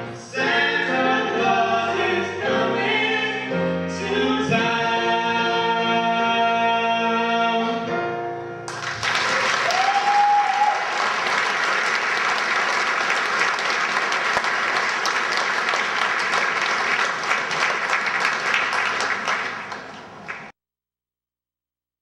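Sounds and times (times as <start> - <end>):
audience applauding: 8.7 - 20.5.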